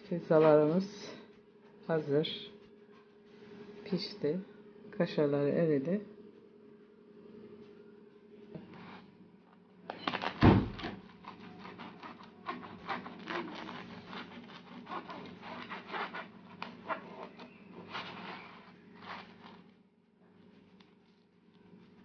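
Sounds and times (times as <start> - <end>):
knife sawing through crisp crust: 11.0 - 19.6.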